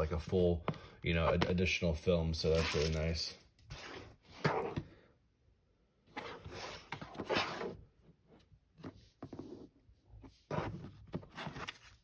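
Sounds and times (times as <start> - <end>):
cardboard case scraping on table: 6.1 - 7.8.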